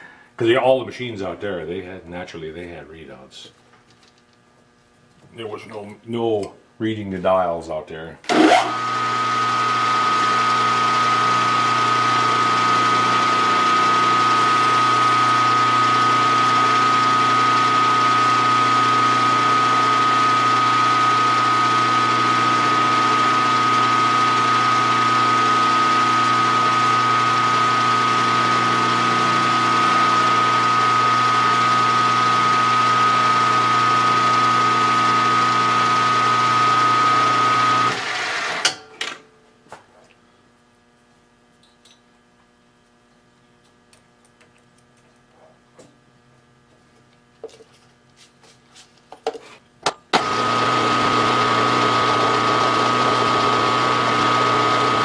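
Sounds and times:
milling machine spindle whine: 0:08.3 - 0:38.7
drill bit boring metal: 0:08.3 - 0:38.8, 0:50.2 - 0:55.0.

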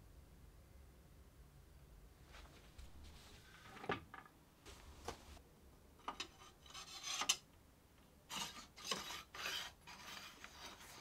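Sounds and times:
metal sliding on metal: 0:06.1 - 0:07.4, 0:08.3 - 0:11.0.

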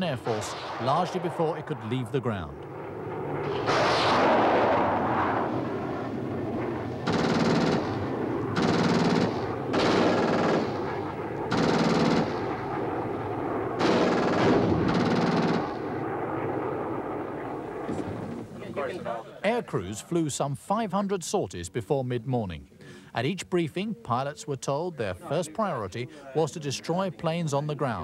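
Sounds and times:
steady rumble: 0:00.2 - 0:18.8
aircraft cannon bursts: 0:02.7 - 0:16.2.

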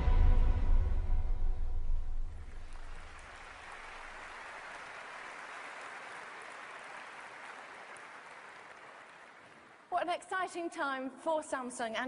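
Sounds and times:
audience applauding: 0:02.4 - 0:09.9.

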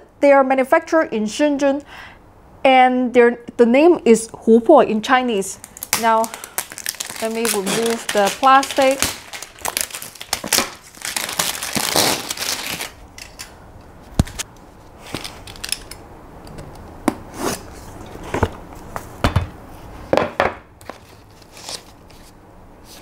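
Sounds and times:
plastic wrap crinkling: 0:05.6 - 0:14.4.

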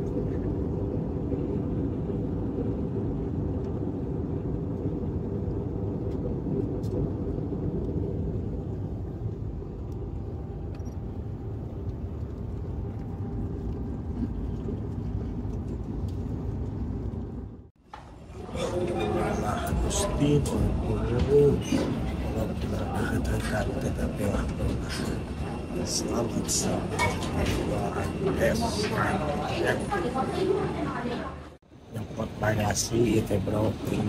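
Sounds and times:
rushing air in cabin: 0:00.0 - 0:17.7
airliner engines rumbling: 0:00.0 - 0:34.0.

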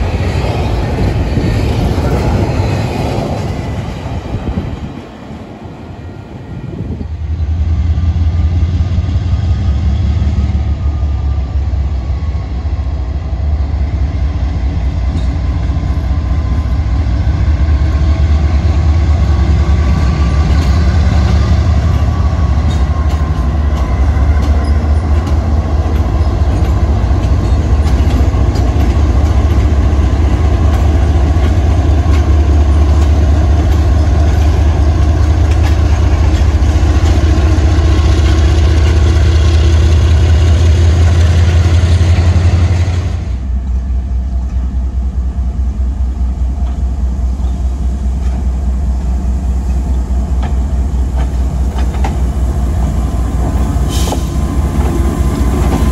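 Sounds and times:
locomotive engine drone: 0:00.0 - 0:55.9
wheel and rail noise: 0:00.0 - 0:55.9.

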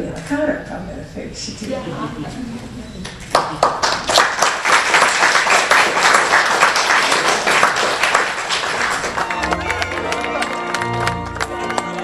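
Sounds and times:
crowd clapping: 0:03.3 - 0:12.0.

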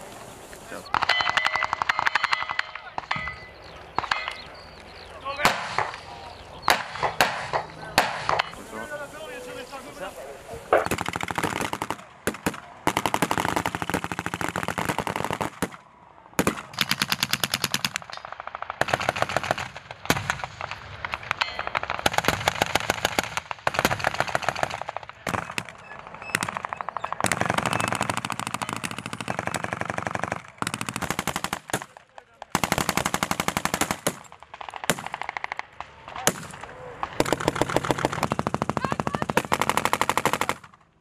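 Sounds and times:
automatic machine-gun fire: 0:10.9 - 0:15.7, 0:18.7 - 0:20.5, 0:21.7 - 0:25.7, 0:26.3 - 0:31.9, 0:37.2 - 0:40.7.

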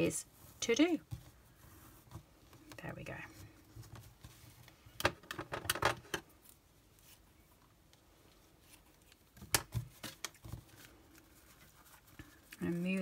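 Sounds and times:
clicks and rustles of ribbon: 0:00.4 - 0:13.0.

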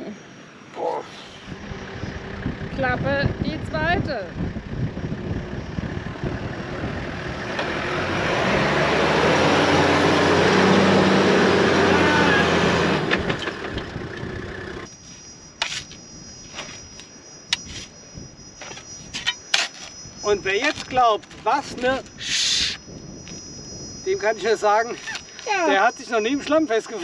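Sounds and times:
high insect trill: 0:00.0 - 0:27.0
diesel engine revving under load: 0:01.4 - 0:14.9.

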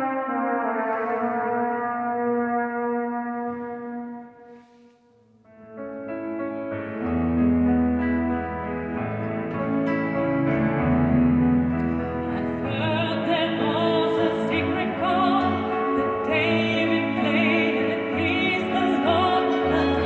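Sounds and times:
keyboard sustained notes: 0:05.4 - 0:20.0
violin sustained notes: 0:11.6 - 0:20.0
woman singing operatically: 0:12.4 - 0:20.0.

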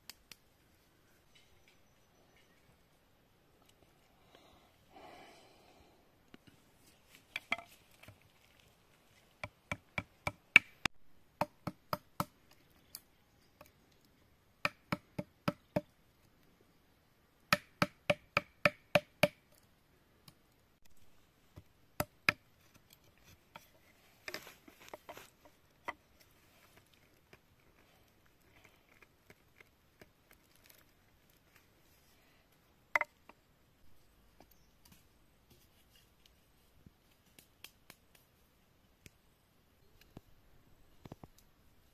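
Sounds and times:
knife chopping bamboo: 0:17.5 - 0:19.4.

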